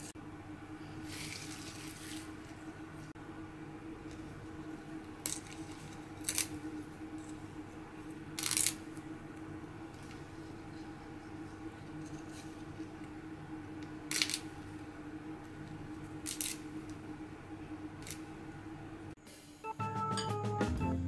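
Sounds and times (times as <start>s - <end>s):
leaves tearing by hand: 5.2s - 6.6s, 8.4s - 8.8s.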